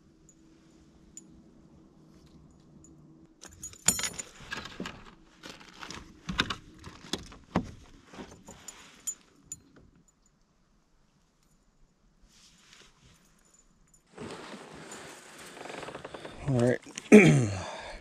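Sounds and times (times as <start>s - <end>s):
fishing tackle jingling and clattering: 2.6s - 5.0s, 8.3s - 10.3s.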